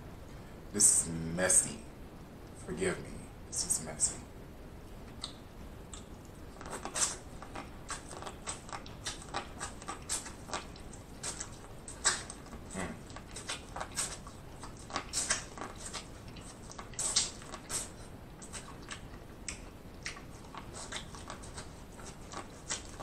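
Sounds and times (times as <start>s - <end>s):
corn on the cob being chewed: 5.2s - 23.0s.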